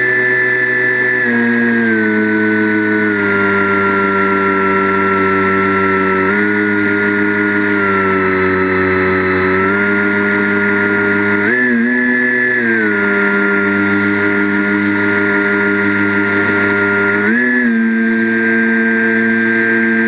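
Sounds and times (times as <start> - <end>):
electric motor and propeller whine: 0.0 - 20.0.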